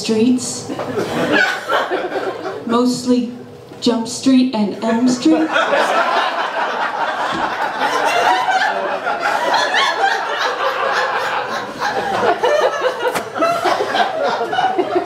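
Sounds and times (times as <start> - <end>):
audience laughing: 0.7 - 2.6, 5.1 - 15.0.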